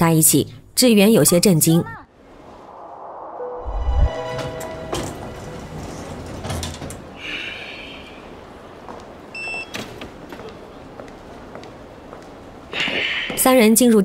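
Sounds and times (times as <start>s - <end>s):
short electronic beep: 3.4s - 5.2s.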